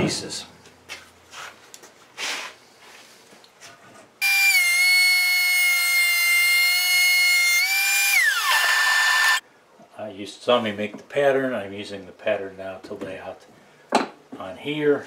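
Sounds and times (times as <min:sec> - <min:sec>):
thickness planer whining: 0:04.2 - 0:09.4.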